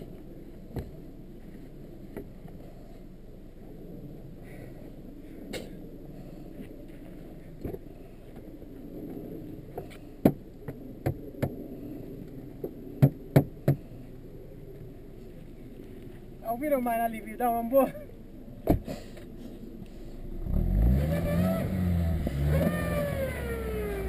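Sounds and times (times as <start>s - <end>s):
steady low rumble: 0.0s - 20.8s.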